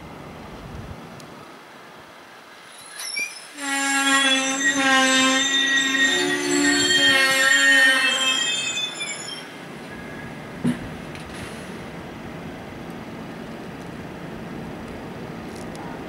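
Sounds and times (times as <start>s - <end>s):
train rolling slowly: 0.0s - 16.0s
train wheels squealing: 2.6s - 10.3s.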